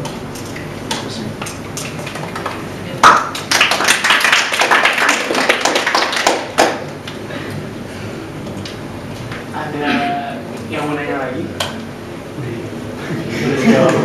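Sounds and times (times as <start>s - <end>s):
audience applauding: 1.9s - 6.9s.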